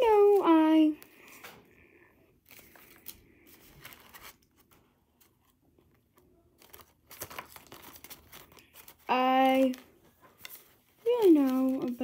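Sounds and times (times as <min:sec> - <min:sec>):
trading cards clicking and rustling: 0:06.6 - 0:12.0.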